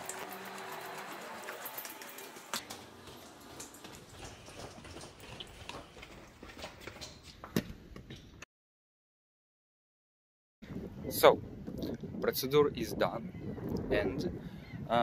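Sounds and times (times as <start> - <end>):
footsteps on tiled floor: 2.3 - 8.5.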